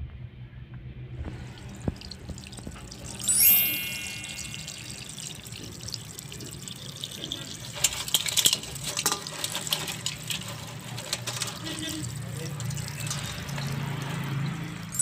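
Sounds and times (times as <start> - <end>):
running water splashing: 1.2 - 15.0
high ringing tone: 3.2 - 5.4.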